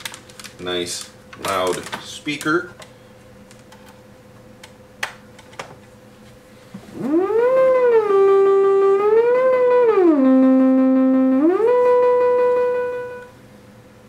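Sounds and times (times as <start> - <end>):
sliding synth tone: 6.9 - 13.3.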